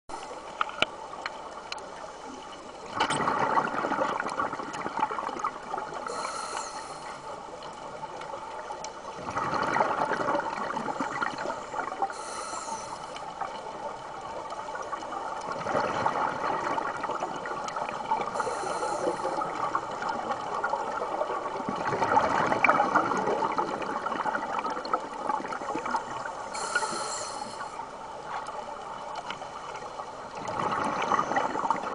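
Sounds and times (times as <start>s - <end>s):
exhaled bubbles underwater: 1.4s - 31.9s
scuba regulator inhale hiss: 6.0s - 7.4s, 12.1s - 13.2s, 18.4s - 19.6s, 26.4s - 27.8s.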